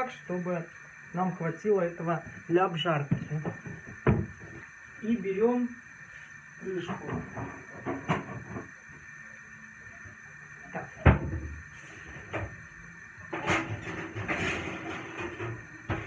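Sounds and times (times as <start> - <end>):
rustling and clatter: 13.3 - 16.0.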